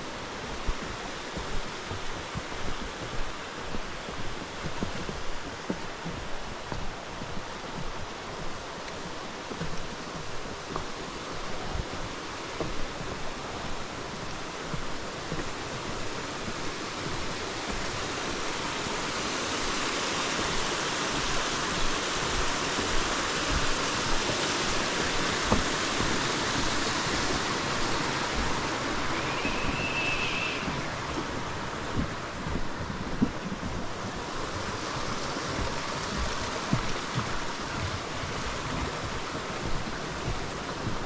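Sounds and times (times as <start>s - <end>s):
water rushing: 0.0s - 41.0s
short high chirp: 29.1s - 30.7s.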